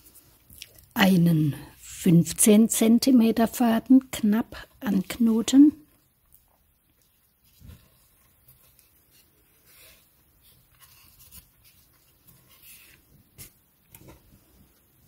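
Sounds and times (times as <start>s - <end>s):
fingers rustling cord: 6.0s - 15.0s.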